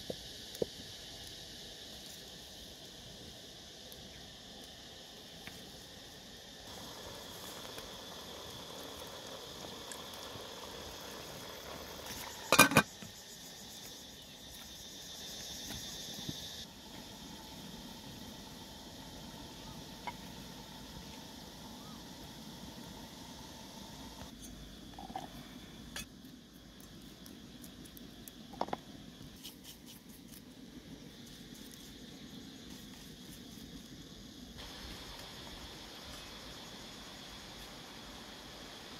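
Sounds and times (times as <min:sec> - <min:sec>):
insects chirring: 0:00.0 - 0:38.9
metal lid clattering on pot: 0:12.5 - 0:12.9.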